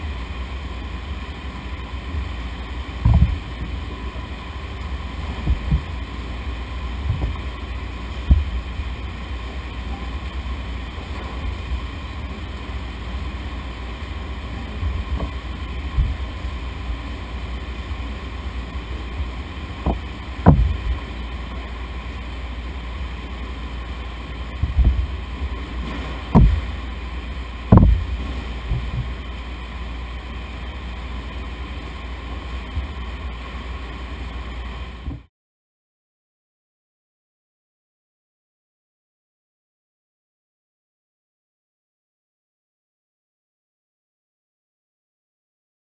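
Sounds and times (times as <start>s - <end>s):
machinery hum and rumble: 0.0s - 35.3s
thumps and knocks: 3.0s - 3.6s, 5.2s - 5.9s, 7.0s - 7.4s, 8.2s - 8.6s, 14.7s - 16.2s, 19.8s - 21.0s, 24.6s - 25.1s, 25.8s - 26.7s, 27.7s - 29.2s.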